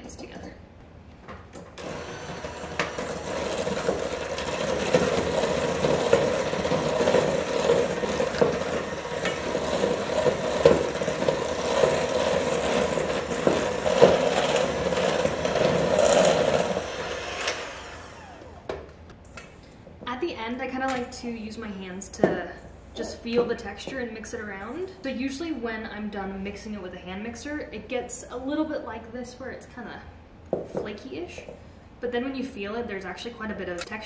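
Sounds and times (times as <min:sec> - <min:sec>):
electric hand mixer running: 0:01.8 - 0:18.8.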